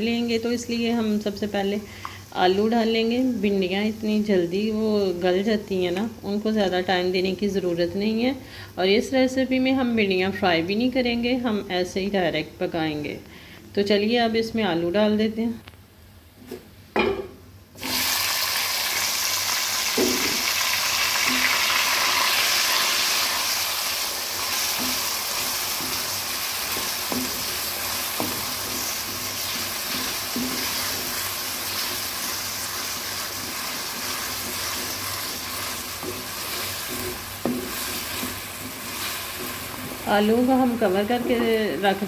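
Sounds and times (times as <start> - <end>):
potatoes sizzling in hot oil: 0.2 - 7.2, 17.8 - 42.0
spatula knocking and scraping: 24.7 - 32.0, 33.4 - 40.2, 40.9 - 42.0.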